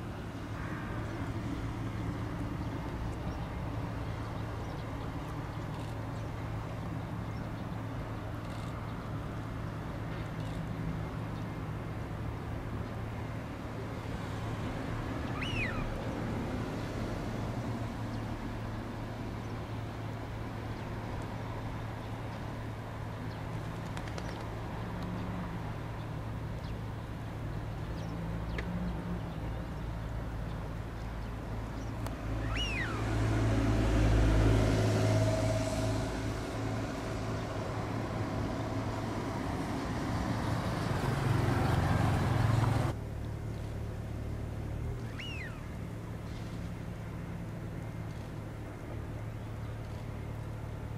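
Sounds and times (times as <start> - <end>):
distant engine rumble: 14.8 - 18.3, 29.2 - 50.9
downward-gliding bird whistles: 15.3 - 16.0, 32.4 - 33.2, 45.0 - 45.7.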